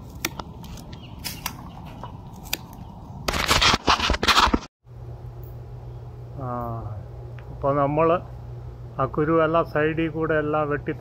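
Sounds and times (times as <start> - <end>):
scissors snipping branches: 0.0 - 4.5.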